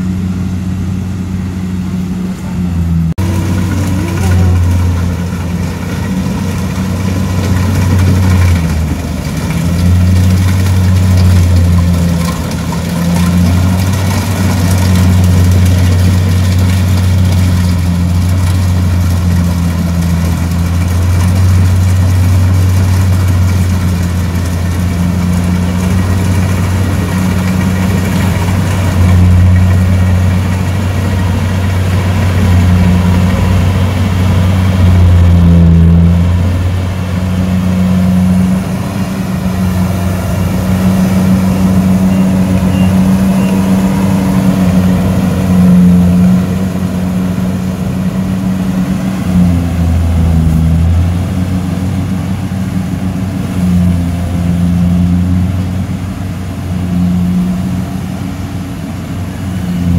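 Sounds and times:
engine running: 0.0 - 59.9.

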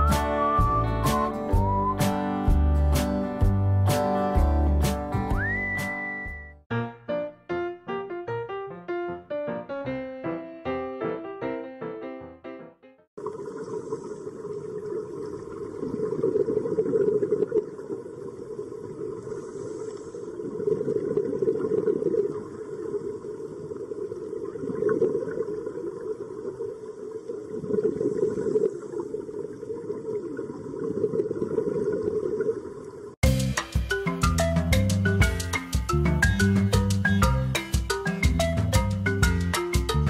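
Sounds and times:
music: 0.0 - 13.1, 33.2 - 40.0.

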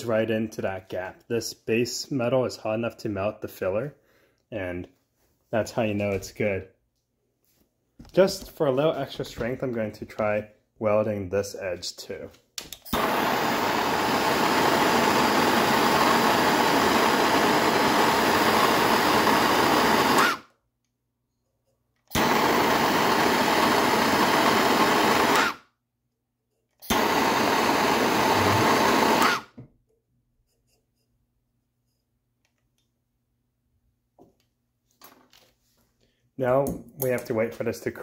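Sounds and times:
torch flame hissing: 12.9 - 20.4, 22.1 - 25.5, 26.9 - 29.5.

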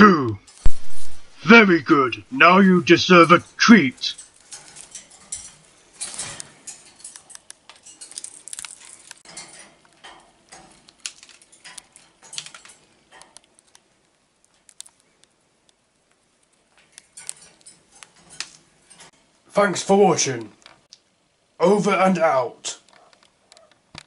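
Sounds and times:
parakeet nibbling crunching clicks: 7.1 - 10.2, 10.8 - 18.6.

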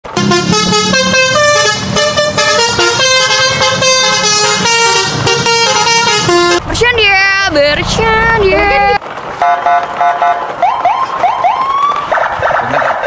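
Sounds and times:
horn-like tune: 0.1 - 6.7.

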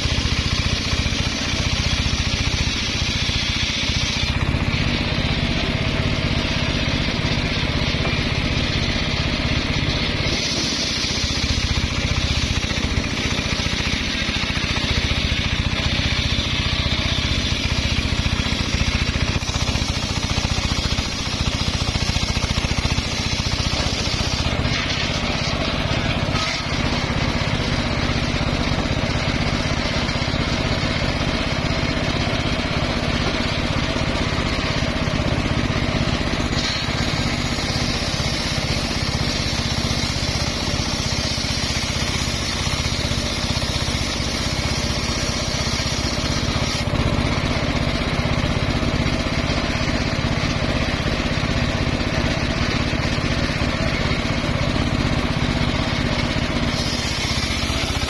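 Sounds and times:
circular saw ripping timber: 0.0 - 28.7, 36.1 - 47.6, 55.6 - 58.0.

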